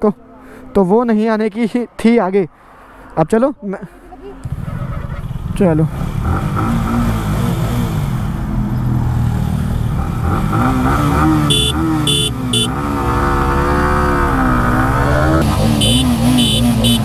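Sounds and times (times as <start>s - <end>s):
motorcycle engine idling and revving: 4.4s - 17.0s.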